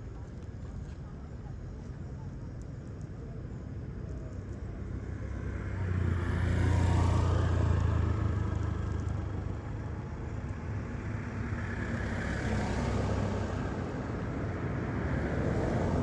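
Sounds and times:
vehicle approaching: 4.8 - 16.0
vehicle passing: 5.3 - 9.8.

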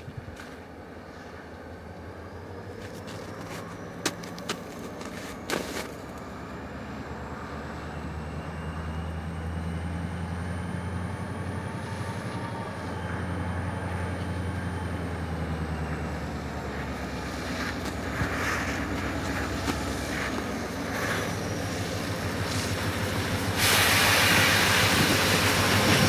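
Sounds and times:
diesel locomotive engine drone: 0.0 - 26.0
rushing noise: 17.2 - 26.0.

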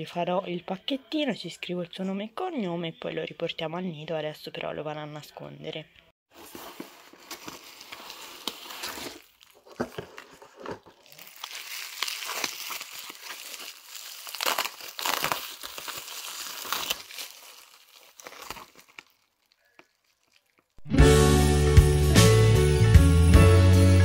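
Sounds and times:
bubble wrap crinkling: 6.3 - 20.8
cardboard box handled: 6.4 - 11.3.

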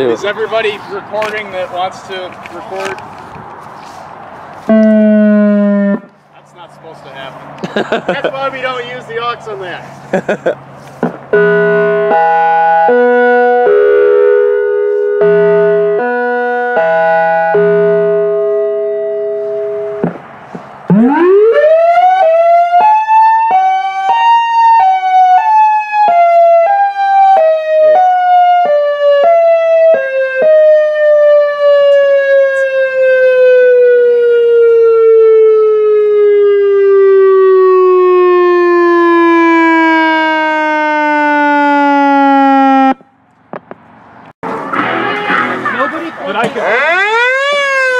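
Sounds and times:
electronic warning siren: 4.7 - 6.2, 11.3 - 20.1, 20.9 - 43.0, 46.6 - 47.9.

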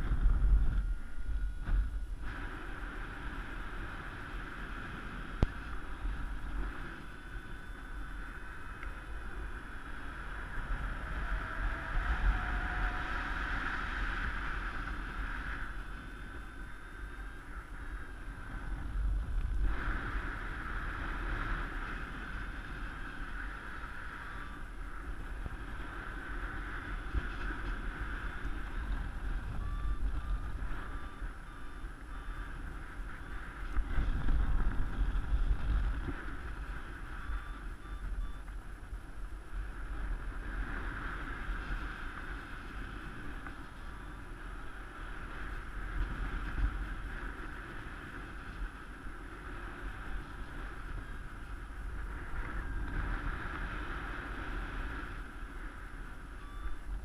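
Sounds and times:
wind rushing over microphone: 0.0 - 57.0
faint short beeps: 0.5 - 2.3, 7.1 - 10.0, 16.1 - 18.4, 23.8 - 25.2, 28.8 - 33.7, 36.9 - 38.6, 43.8 - 44.6, 56.0 - 57.0.

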